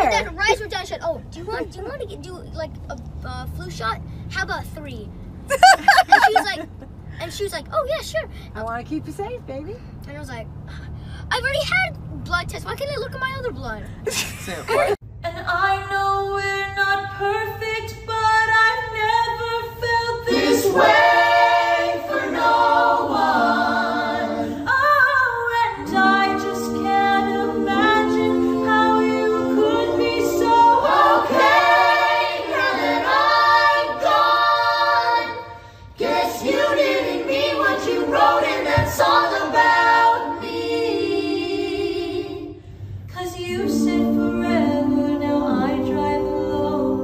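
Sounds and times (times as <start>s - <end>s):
group singing a cappella: 18.2s - 42.6s, 43.2s - 47.0s.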